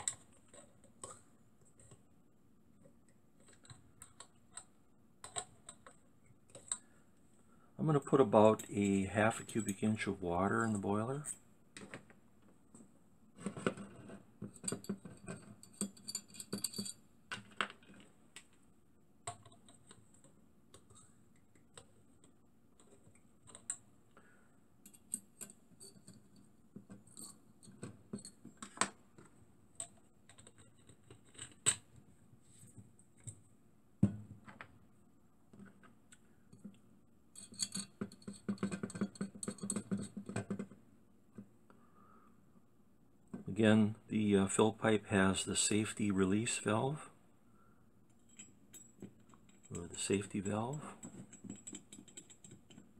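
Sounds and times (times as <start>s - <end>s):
small metal parts clicking: 37.3s - 40.5s, 50.8s - 52.9s.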